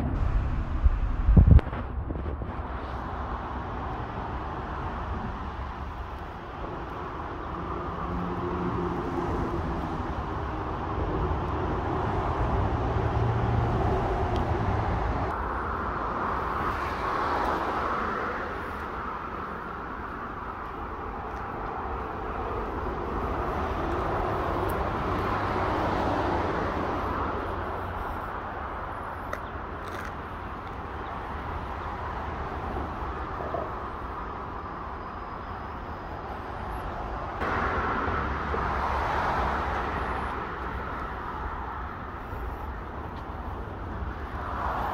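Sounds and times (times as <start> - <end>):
low engine hum: 0.0 - 16.4
distant road traffic: 0.0 - 44.9.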